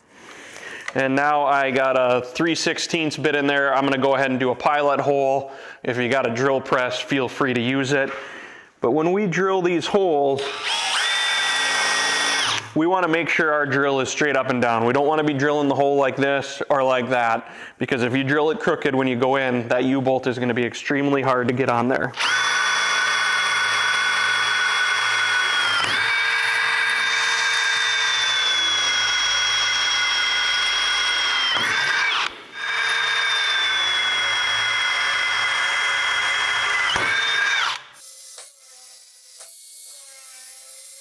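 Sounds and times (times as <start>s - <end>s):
power drill whining: 10.4s - 12.8s, 22.2s - 40.8s.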